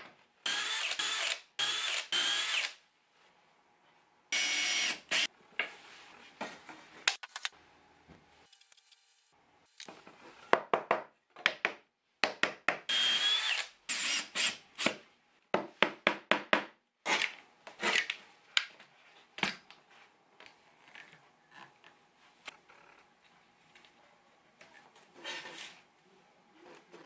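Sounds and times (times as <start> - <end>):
cordless drill whining: 0.5 - 2.8, 4.4 - 5.3, 12.9 - 14.5.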